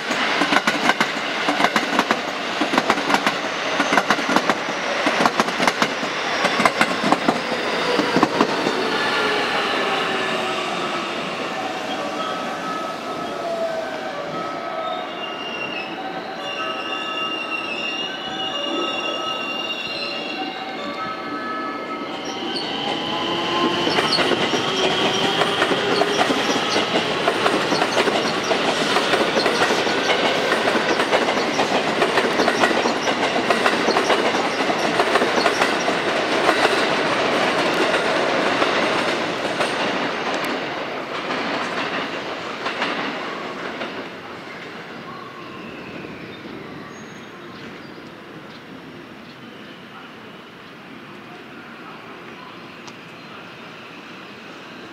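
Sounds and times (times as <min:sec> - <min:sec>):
train wheels clicking over rail joints: 0:00.0 - 0:09.3, 0:23.6 - 0:44.1
high wheel squeal: 0:07.4 - 0:27.0.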